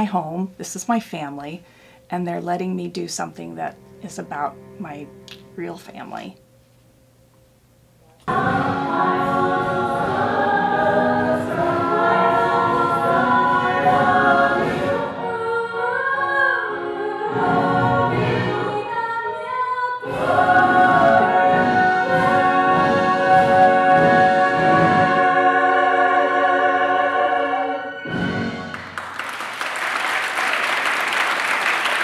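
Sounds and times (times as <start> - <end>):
cast singing together: 8.2 - 28.4.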